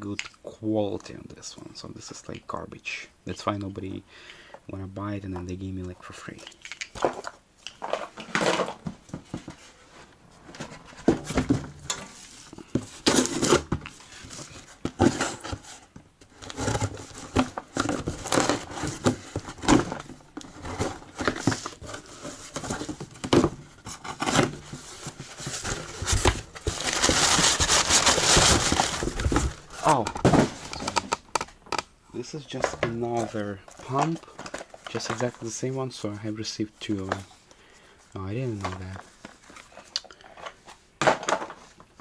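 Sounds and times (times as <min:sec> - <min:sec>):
cardboard box tearing: 0:16.4 - 0:20.0, 0:20.6 - 0:30.6
packing paper crinkling: 0:23.8 - 0:31.1, 0:32.5 - 0:35.8.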